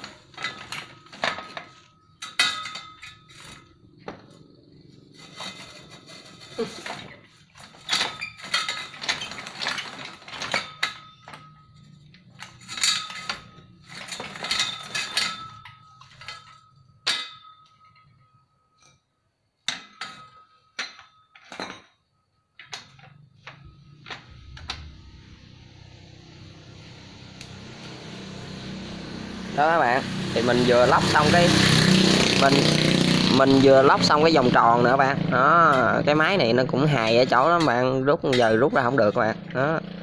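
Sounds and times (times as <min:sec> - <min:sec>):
metallic clanks with ringing tone: 0:00.4 - 0:04.5, 0:07.8 - 0:27.0.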